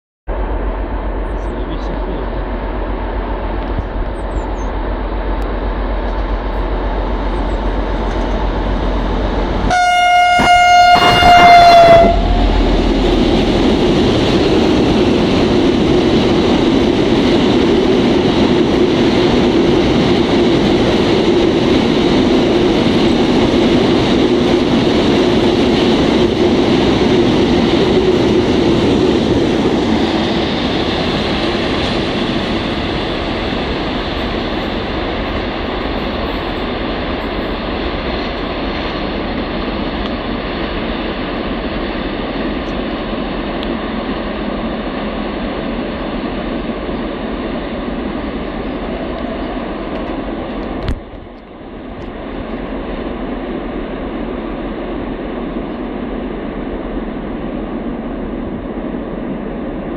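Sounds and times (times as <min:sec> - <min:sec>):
diesel locomotive approaching: 0:00.3 - 0:59.9
locomotive horn blast: 0:09.6 - 0:12.7.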